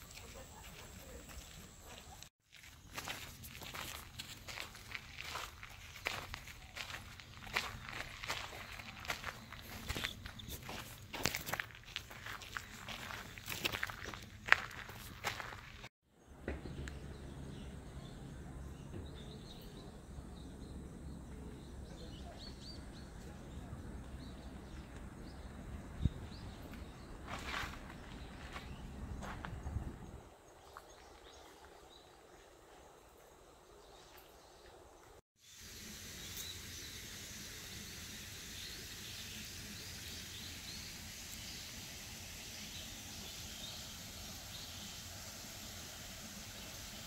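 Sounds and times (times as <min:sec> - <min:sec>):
small birds chirping: 0:00.1 - 0:37.1, 0:37.8 - 0:45.0
high insect hiss: 0:35.4 - 0:47.0.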